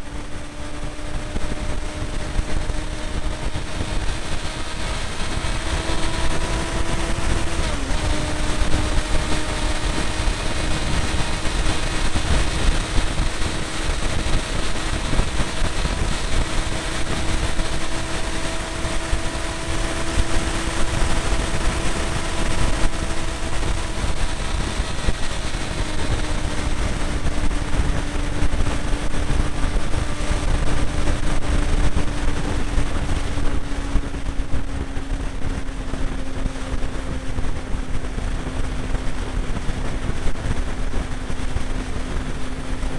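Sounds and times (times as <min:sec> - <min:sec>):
motorcycle engine cruising: 0:00.0 - 0:42.9
wind rumble on microphone: 0:00.0 - 0:42.9.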